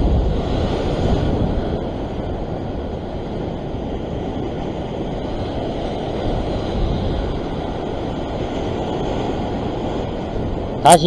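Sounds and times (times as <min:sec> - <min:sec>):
ocean surf against rocks: 0:00.0 - 0:11.0
wind buffeting microphone: 0:00.0 - 0:11.0.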